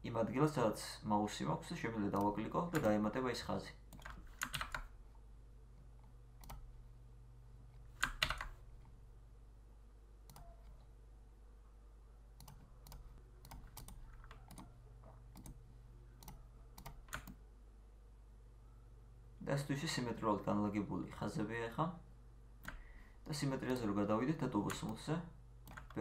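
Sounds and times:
faint low hum: 0.0 - 26.0
mouse and keyboard clicks: 10.3 - 10.8, 12.4 - 15.6.

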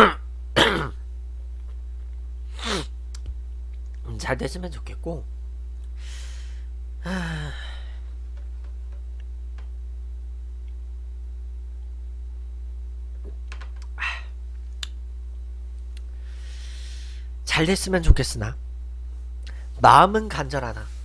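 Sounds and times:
low electrical hum: 0.0 - 21.0
short breath: 6.0 - 8.0, 16.2 - 17.3.

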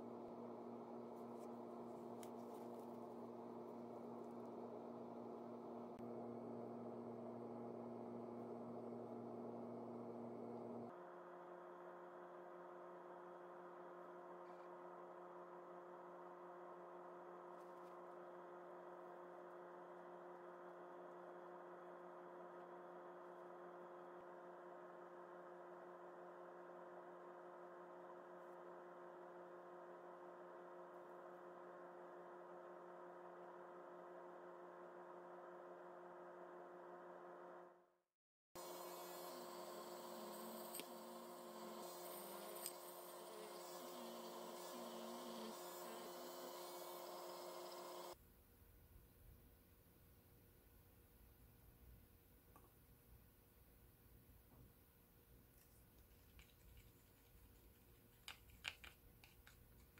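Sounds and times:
electrical transformer hum: 0.0 - 10.9, 38.6 - 48.2
hiss: 38.7 - 48.2.

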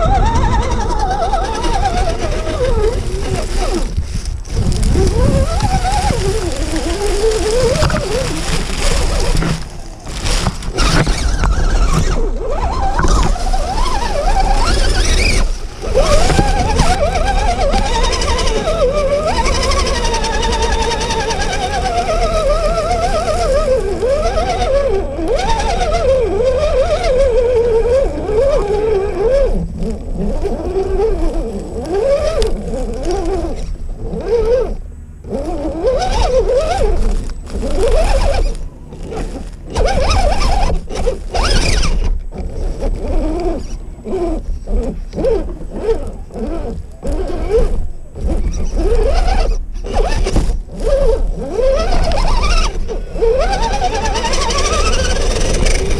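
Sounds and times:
toy car electric motor whining: 0.0 - 55.9.

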